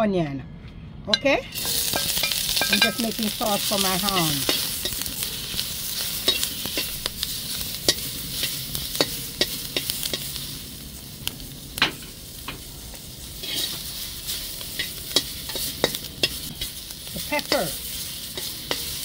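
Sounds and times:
metal spatula scraping a pan: 1.4 - 10.4, 13.4 - 19.0
onions and peppers sizzling in pan: 1.5 - 19.0.

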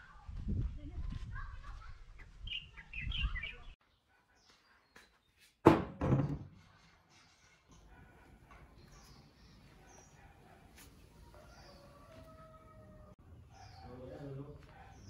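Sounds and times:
bird chirps: 2.2 - 5.4.

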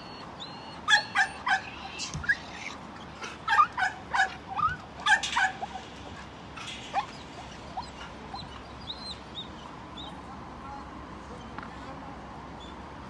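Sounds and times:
dogs barking and yelping: 0.0 - 9.8.

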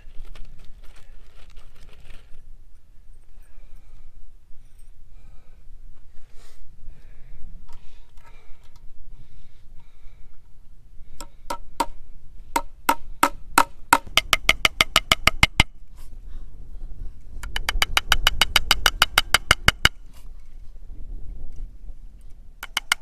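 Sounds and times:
hammer striking fence staples: 22.6 - 23.0.

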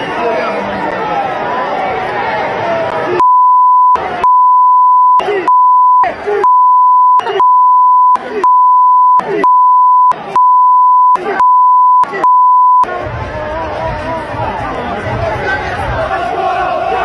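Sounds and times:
censor bleep: 3.2 - 12.9
crowd chanting: 12.1 - 17.0.

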